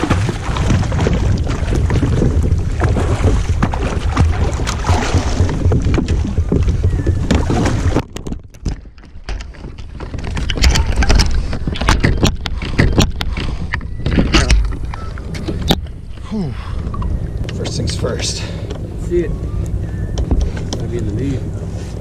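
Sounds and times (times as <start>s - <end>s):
fish splashing in water: 0.0s - 8.2s
kayak paddle strokes: 0.0s - 17.8s
knocks and clicks from kayak: 0.0s - 17.8s, 19.6s - 21.7s
wind on microphone: 0.0s - 18.1s.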